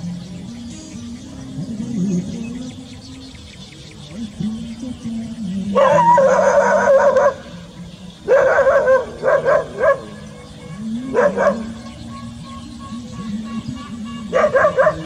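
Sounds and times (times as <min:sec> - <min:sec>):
dog whining and yipping: 0:11.1 - 0:11.8.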